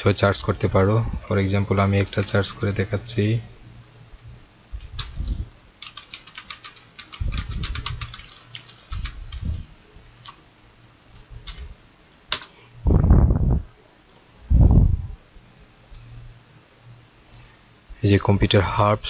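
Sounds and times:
computer keyboard keys clicking: 2.0 - 2.4, 5.0 - 9.5, 11.4 - 11.6, 12.3 - 12.5
dull low thumps: 12.8 - 13.7, 14.5 - 15.2.

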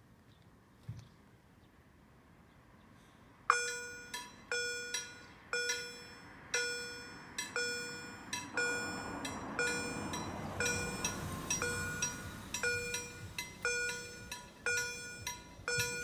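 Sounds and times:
level crossing warning bell: 3.5 - 16.0.

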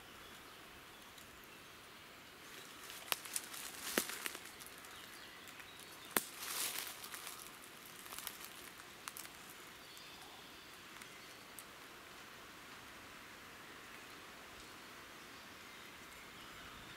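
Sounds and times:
rustling in dry leaves: 0.0 - 13.1
faint forest background: 0.0 - 16.9
twig cracking: 2.8 - 9.6
soft snaps: 5.5 - 9.4.

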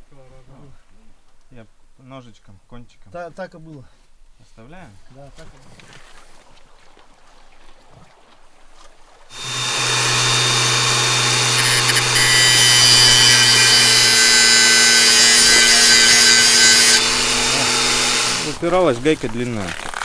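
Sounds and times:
angle grinder motor whine: 9.3 - 18.6
grinding metal nut hiss: 9.3 - 18.6.

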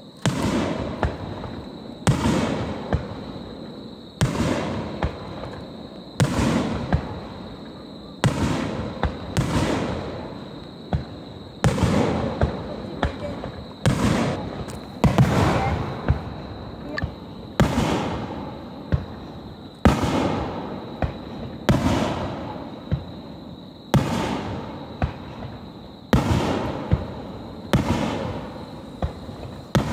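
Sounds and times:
fireworks bursting with echo: 0.0 - 29.9
firework cracks: 0.2 - 3.3, 4.2 - 5.6, 8.2 - 10.3, 10.9 - 16.4, 17.0 - 23.1, 26.1 - 29.9.

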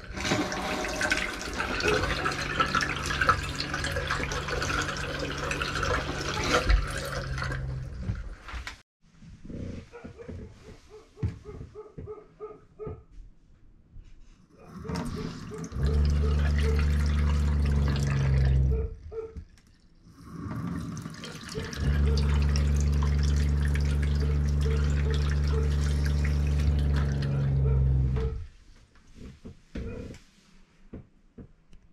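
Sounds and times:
water running into sink: 0.0 - 8.5, 14.7 - 18.8, 19.7 - 28.1.

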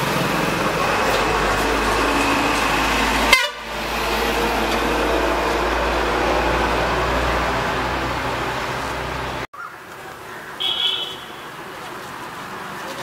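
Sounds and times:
street traffic noise: 0.0 - 13.0
vehicle horns: 3.2 - 3.8, 10.6 - 11.6.

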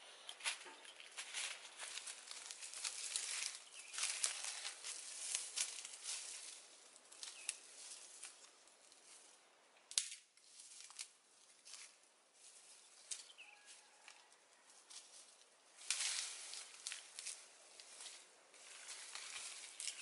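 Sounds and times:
footsteps through dry leaves: 0.3 - 9.4, 10.4 - 20.0
twig snapping: 7.1 - 8.5, 9.8 - 11.2, 15.8 - 17.9.

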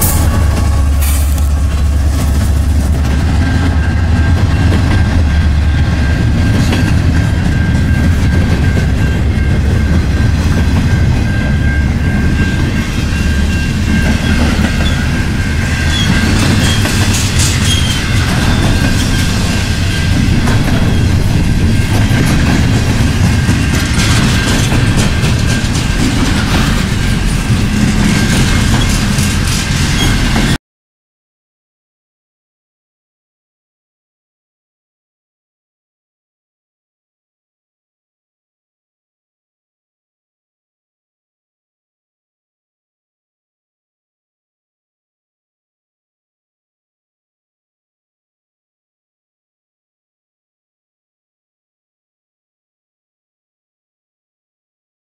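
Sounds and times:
freight train rumbling: 0.0 - 30.6
wheels clacking over rail joints: 0.0 - 30.6.

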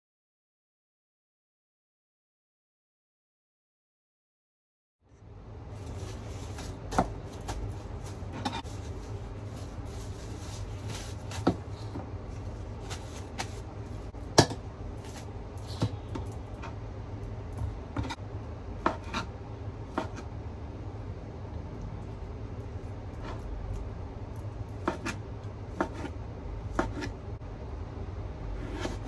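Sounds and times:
steady low hum: 5.0 - 29.0
knife cutting on cutting board: 24.8 - 25.2, 25.8 - 27.2, 28.6 - 29.0.

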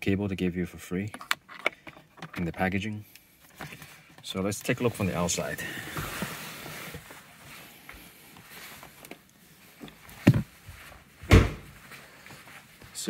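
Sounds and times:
rustling movement: 1.4 - 13.0
dull thumps: 10.2 - 10.6.

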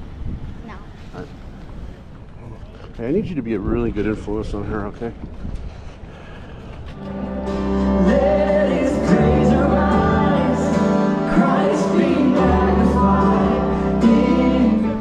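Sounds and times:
instruments playing: 7.0 - 15.0
voices singing worship music: 7.0 - 15.0.

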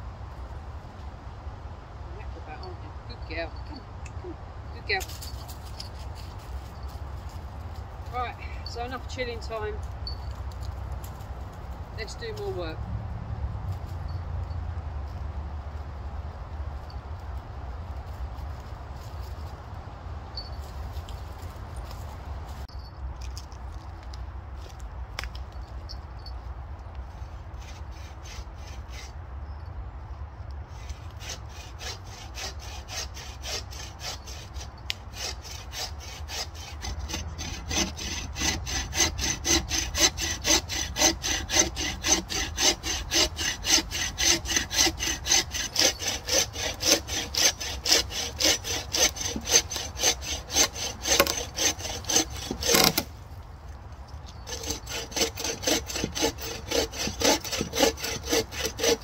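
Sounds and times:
bow saw cutting wood: 27.5 - 29.2, 30.7 - 53.2, 54.3 - 59.0.

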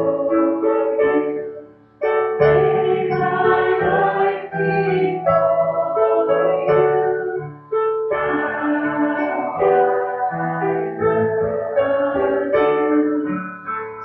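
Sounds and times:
instrumental accompaniment: 0.0 - 14.0
voices singing worship chorus: 2.5 - 7.5, 8.1 - 13.4.

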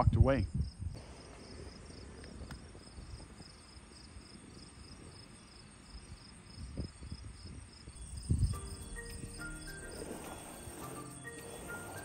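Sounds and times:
insects chirping: 0.5 - 12.0.

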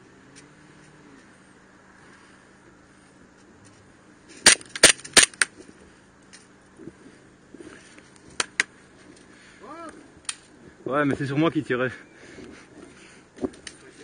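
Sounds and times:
pistol shots cracking: 4.4 - 5.5.

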